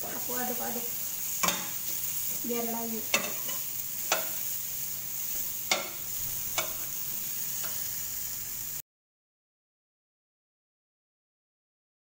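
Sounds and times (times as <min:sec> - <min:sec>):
food sizzling in a wok: 0:00.0 - 0:08.8
metal spoon clinking on pan: 0:01.4 - 0:02.4, 0:03.0 - 0:04.5, 0:05.4 - 0:07.0.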